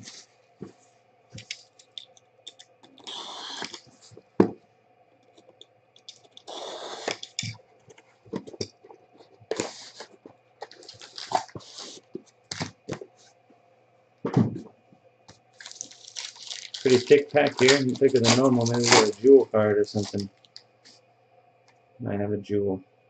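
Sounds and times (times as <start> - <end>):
wrapping ripping: 1.4 - 4.2, 6.4 - 7.5, 9.5 - 12.8, 15.6 - 20.6.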